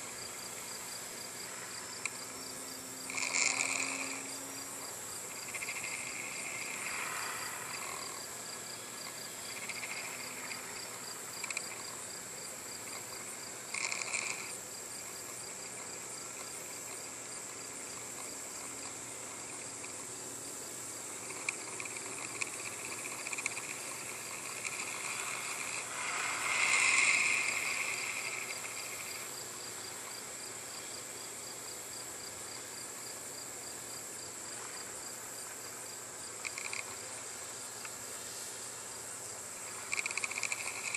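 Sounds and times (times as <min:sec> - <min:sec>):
distant electric motor whine: 0:00.0 - 0:31.2
insects chirping: 0:00.0 - 0:40.9.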